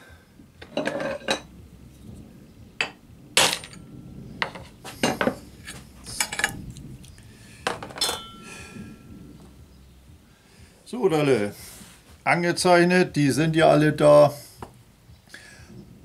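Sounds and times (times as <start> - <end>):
metal tools clinking on stone: 8.0 - 8.4
short metallic ring: 8.0 - 8.5.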